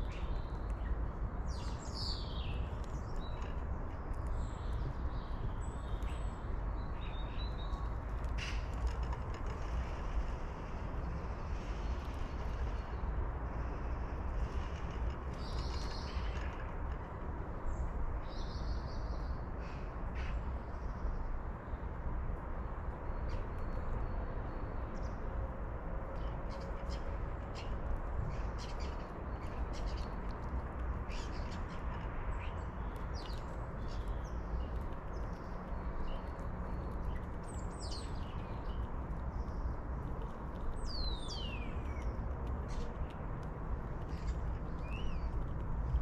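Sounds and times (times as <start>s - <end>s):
low background rumble: 0.0s - 46.0s
birds chirping: 40.7s - 43.0s.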